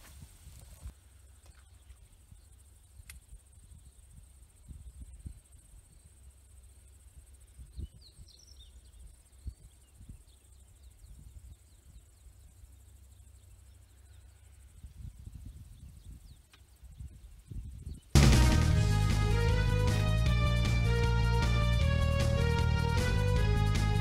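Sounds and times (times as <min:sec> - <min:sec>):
wind rumbling on microphone: 0:00.0 - 0:01.0, 0:03.2 - 0:06.2, 0:07.2 - 0:12.2, 0:14.6 - 0:18.2
faint high insect drone: 0:00.0 - 0:18.1
bird chirps: 0:07.6 - 0:14.6
low rumble: 0:18.2 - 0:24.0.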